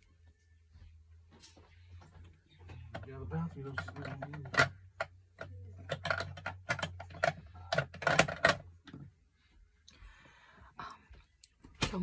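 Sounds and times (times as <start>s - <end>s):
low steady hum: 0.0s - 12.0s
small objects clicking and knocking: 2.9s - 9.0s.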